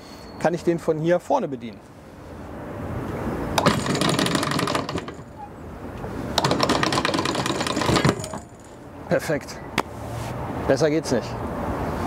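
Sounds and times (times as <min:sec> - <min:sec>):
anchor chain rattling: 0:03.6 - 0:05.4, 0:06.4 - 0:08.8
anchor windlass running: 0:03.6 - 0:05.4, 0:06.4 - 0:08.7.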